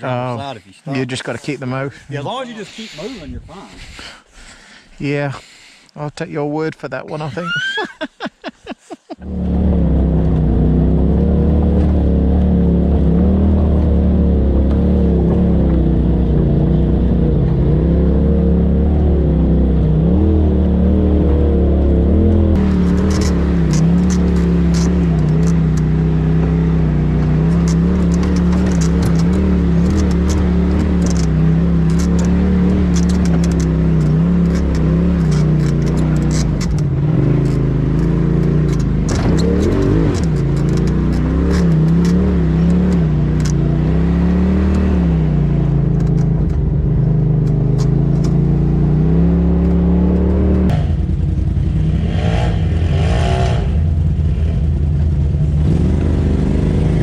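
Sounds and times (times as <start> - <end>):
utv engine running: 9.2 - 57.0.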